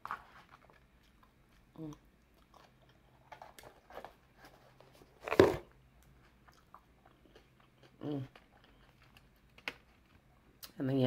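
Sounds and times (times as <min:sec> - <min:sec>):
chewing with wet mouth clicks: 0:06.4 - 0:09.2.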